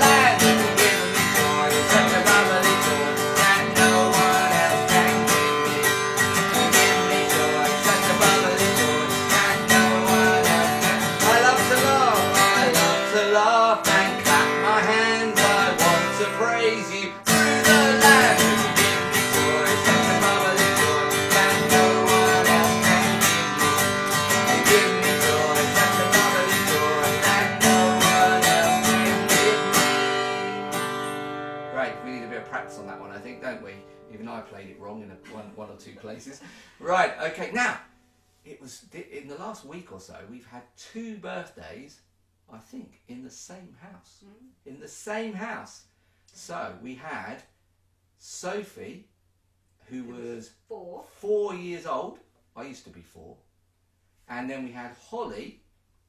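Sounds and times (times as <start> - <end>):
acoustic guitar strumming: 0.0 - 38.3
people singing children's song: 6.6 - 29.9.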